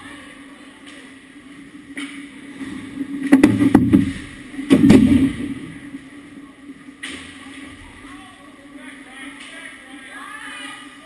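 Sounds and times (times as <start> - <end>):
hockey sticks knocking and scraping: 3.3 - 5.2.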